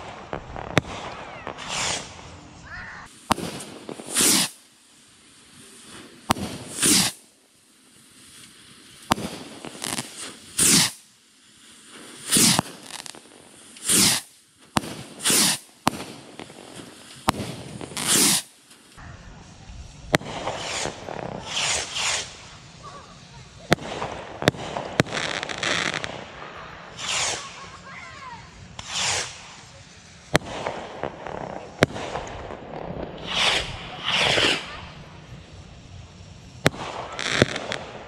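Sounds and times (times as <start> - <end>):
firework cracks: 0.0 - 38.0
bottle rockets whooshing: 4.0 - 4.6, 13.8 - 14.3, 15.2 - 15.6, 17.2 - 18.5, 33.2 - 35.0.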